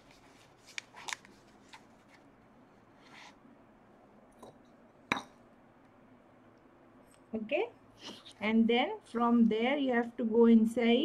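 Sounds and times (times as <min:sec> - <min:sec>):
soft rustle: 0:00.0 - 0:03.4.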